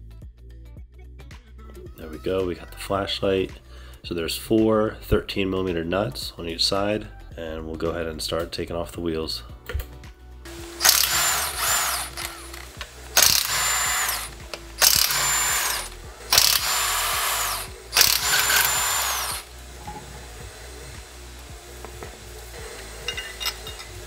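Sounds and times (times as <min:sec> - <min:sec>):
impact wrench bursts: 0:10.5 - 0:19.6.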